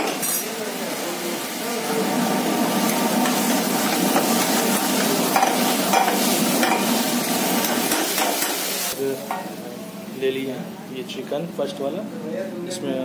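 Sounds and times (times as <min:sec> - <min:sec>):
food sizzling in a pan: 0:00.0 - 0:10.7.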